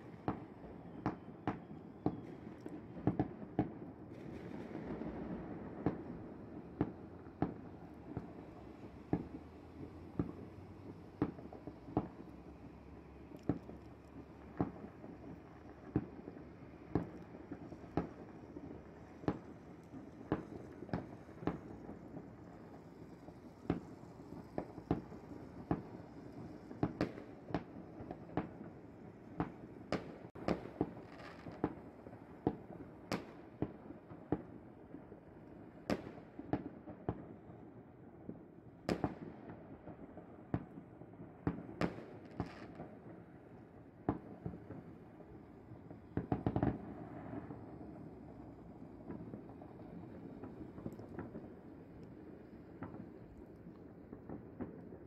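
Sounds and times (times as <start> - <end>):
fireworks bangs and pops: 0.0 - 55.0.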